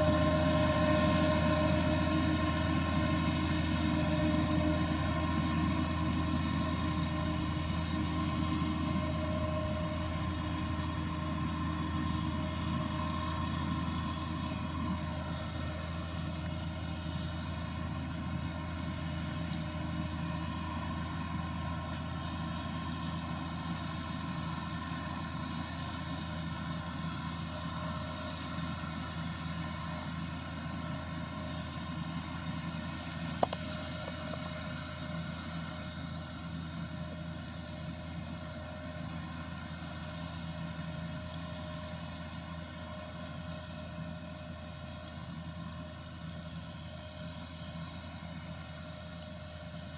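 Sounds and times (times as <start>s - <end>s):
harvester machine hum: 0.0s - 49.9s.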